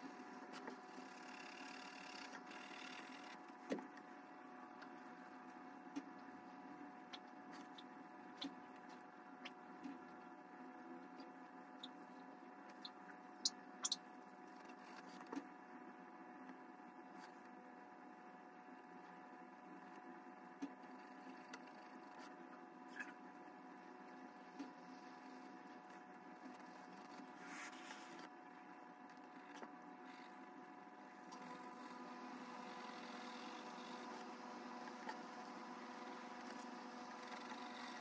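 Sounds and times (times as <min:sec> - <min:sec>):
faint electrical hum: 0:00.0 - 0:38.0
pencil shading on paper: 0:31.4 - 0:38.0.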